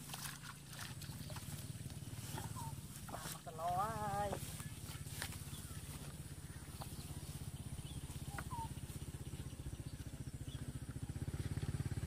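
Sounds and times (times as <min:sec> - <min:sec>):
small engine running: 0:00.0 - 0:12.0
bird chirps: 0:04.6 - 0:11.0.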